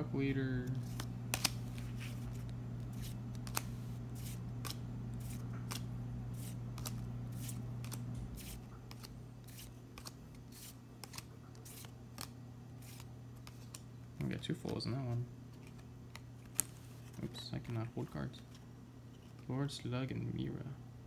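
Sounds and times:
steady low hum: 0:00.0 - 0:21.0
cards flipping with snaps: 0:00.6 - 0:14.8, 0:15.5 - 0:17.8.

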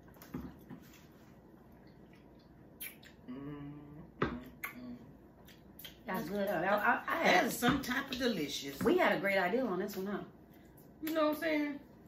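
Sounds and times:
person humming: 0:03.3 - 0:05.1.

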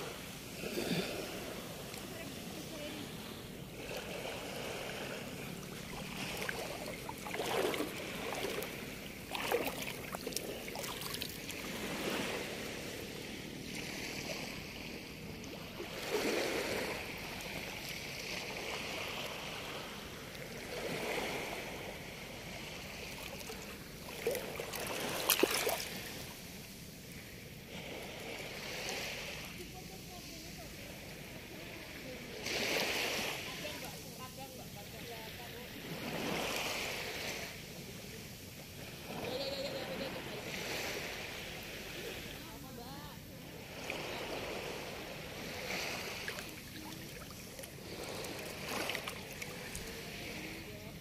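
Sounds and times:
small waves lapping at shore: 0:00.0 - 0:51.0
sharp water splash: 0:24.1 - 0:26.3.

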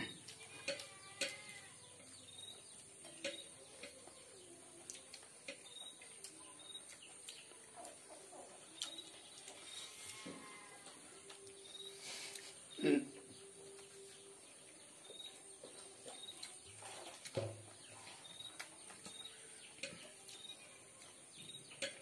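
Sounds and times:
chewing and mouth clicks: 0:04.8 - 0:10.2, 0:15.8 - 0:17.3.

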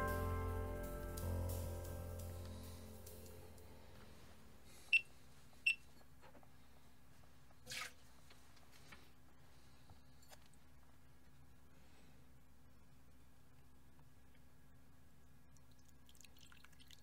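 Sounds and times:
background music: 0:00.0 - 0:04.9.

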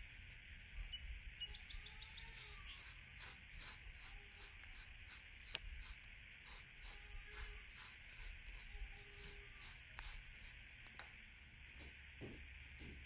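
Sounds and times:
steady hiss: 0:00.0 - 0:12.8.

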